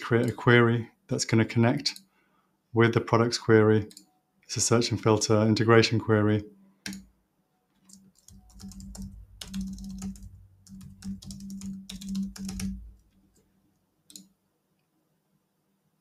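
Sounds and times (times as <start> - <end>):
typing on a computer keyboard: 6.8 - 7.1, 7.8 - 13.2.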